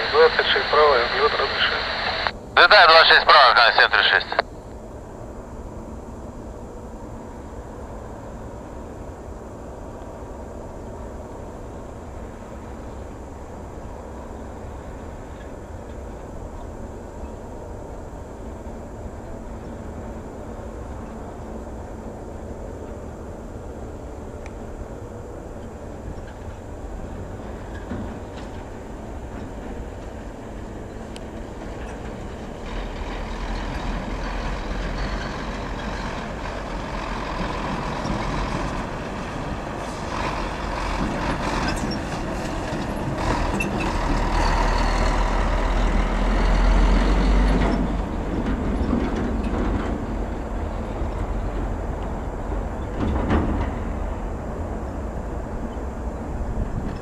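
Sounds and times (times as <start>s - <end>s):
jet engine roar: 0.0s - 4.4s.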